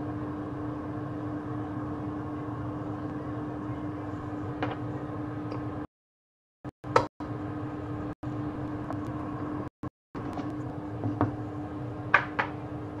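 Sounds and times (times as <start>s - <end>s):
steady mechanical hum: 0.0s - 5.9s, 6.8s - 13.0s.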